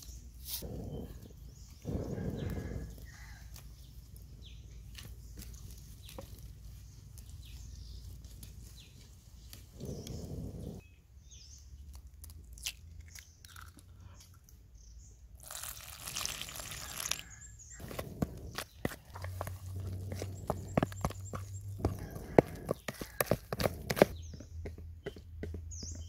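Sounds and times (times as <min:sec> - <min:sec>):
wood fire crackling: 0:09.4 - 0:10.8, 0:17.8 - 0:20.6
water pouring into a bowl: 0:15.4 - 0:17.2.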